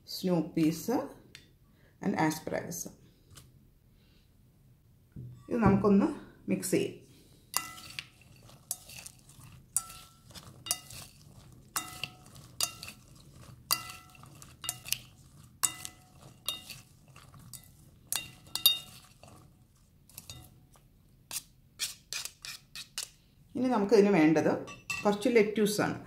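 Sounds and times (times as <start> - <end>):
spoon clinking against glass bowl: 7.6 - 9.1, 9.8 - 13.0, 13.7 - 19.2, 24.7 - 25.1.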